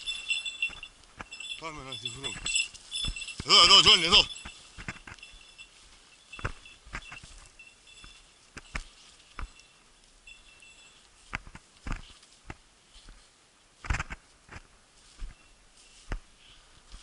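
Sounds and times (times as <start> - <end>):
faint high ringing tones: 0.0 - 11.3, 15.0 - 16.6
footsteps crunching through dry brush: 0.0 - 17.0.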